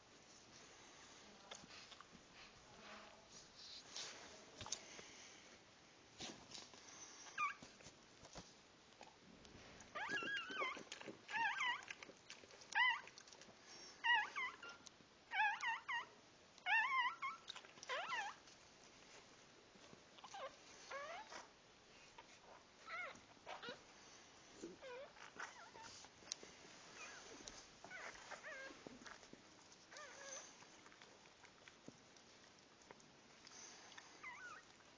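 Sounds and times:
puppies squeaking and whimpering: 10.0s - 12.0s, 16.7s - 18.4s, 34.2s - 34.7s.

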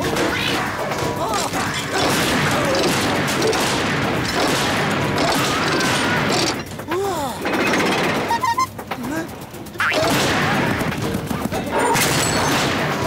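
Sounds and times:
mechanical clatter and rattle: 0.0s - 13.0s.

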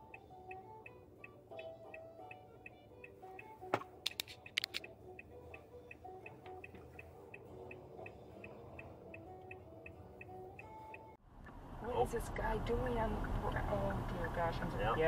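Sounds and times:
light ticking beat: 0.0s - 11.2s, 12.4s - 15.0s
soft background music: 0.0s - 11.2s
sharp clicks and knocks: 3.7s - 4.9s.

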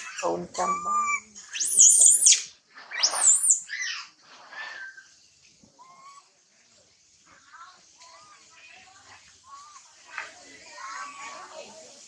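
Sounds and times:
baby monkey whimpering: 0.0s - 2.4s
baby monkey squealing: 0.0s - 4.1s.

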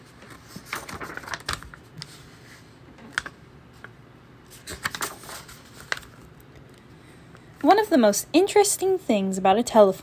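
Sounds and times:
paper pages rustling and crackling: 0.0s - 6.3s.

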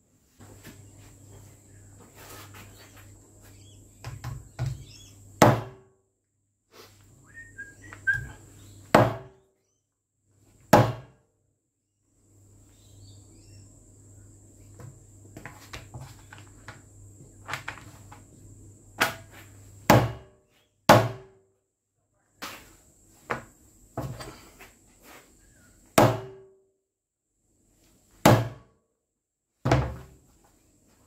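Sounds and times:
axe chopping with heavy knocks: 5.4s - 5.9s, 8.9s - 9.4s, 10.7s - 11.2s, 19.9s - 20.3s, 20.9s - 21.4s, 26.0s - 26.5s, 28.2s - 28.7s, 29.7s - 30.1s.

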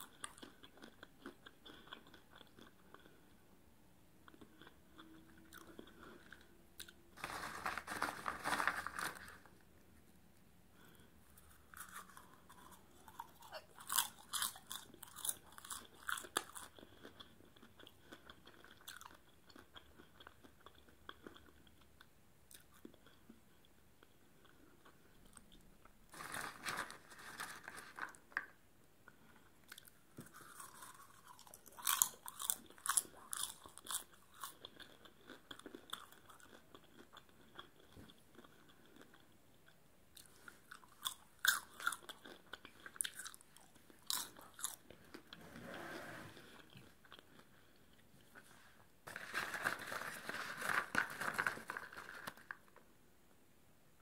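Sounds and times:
chewing popcorn: 0.0s - 3.5s, 4.2s - 9.6s, 10.8s - 45.4s, 46.4s - 48.5s
hand rummaging popcorn in plastic tub: 7.2s - 9.5s, 26.1s - 28.2s, 49.1s - 52.6s.

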